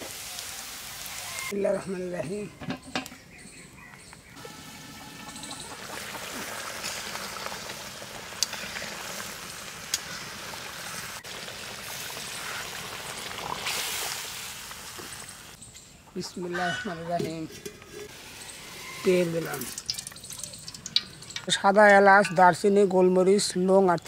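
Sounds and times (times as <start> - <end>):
water pouring and trickling: 4.4 - 15.6, 17.1 - 22.6.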